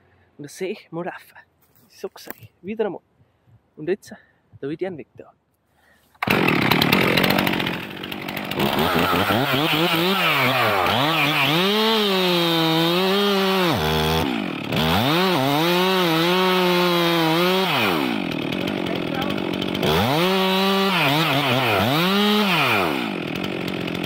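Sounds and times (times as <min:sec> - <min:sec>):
chainsaw cutting tree trunk: 0:06.2 - 0:24.0.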